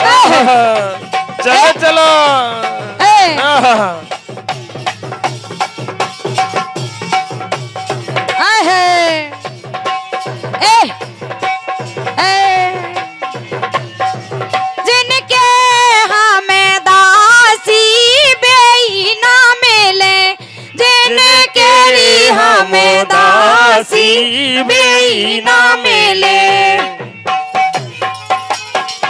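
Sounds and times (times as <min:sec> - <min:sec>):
drums beating: 0:00.0 - 0:29.0.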